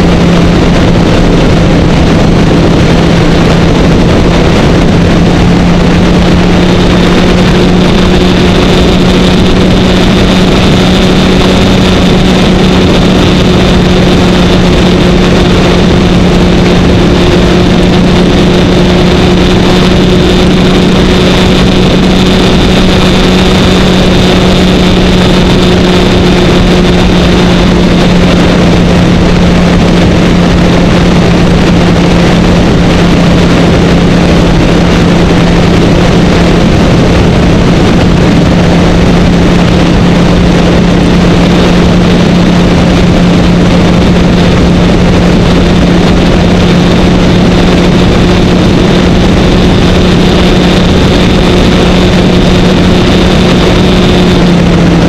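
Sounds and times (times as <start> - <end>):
loud wind noise: 0.0 - 55.0
motorcycle engine running steadily: 0.0 - 55.0.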